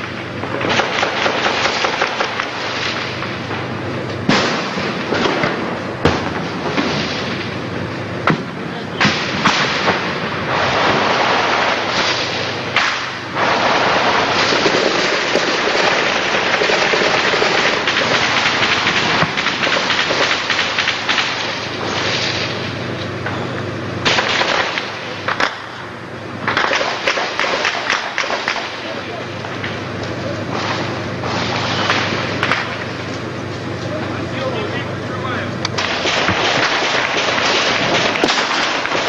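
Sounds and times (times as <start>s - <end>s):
automatic gunfire: 0.6s - 2.6s, 26.5s - 28.9s, 35.8s - 39.0s.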